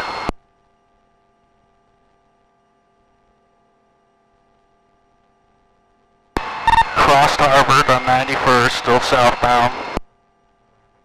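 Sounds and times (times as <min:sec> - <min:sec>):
faint electrical hum: 0:00.0 - 0:11.0
police radio transmission: 0:06.7 - 0:10.0.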